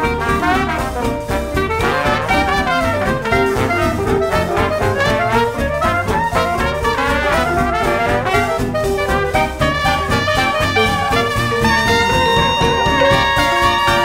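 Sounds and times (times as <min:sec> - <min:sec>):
upbeat brass jazz music: 0:00.0 - 0:14.0.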